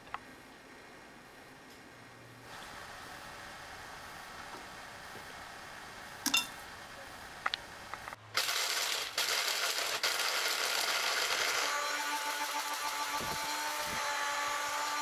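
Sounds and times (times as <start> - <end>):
electric blender running: 8.4 - 15.0.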